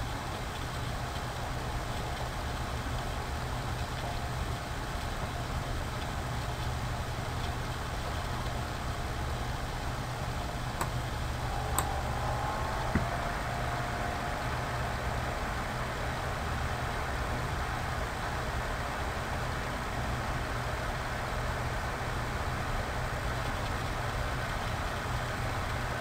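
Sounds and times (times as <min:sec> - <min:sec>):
low hum with hiss: 0:00.0 - 0:26.0
faint clicks: 0:10.8 - 0:13.4.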